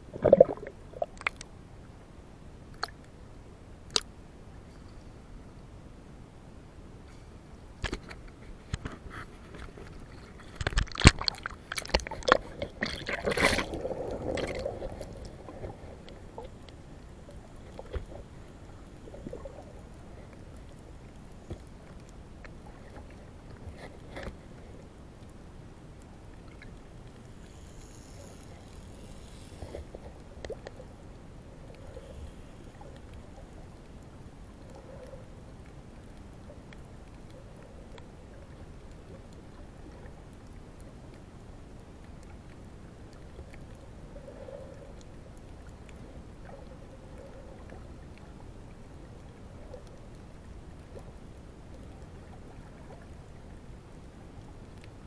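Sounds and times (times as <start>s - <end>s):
faint underwater clicks: 0.2s - 1.6s, 2.6s - 3.2s, 3.8s - 5.7s, 7.0s - 55.0s
water splashing against camera: 7.8s - 20.4s
muffled underwater hiss: 11.5s - 55.0s.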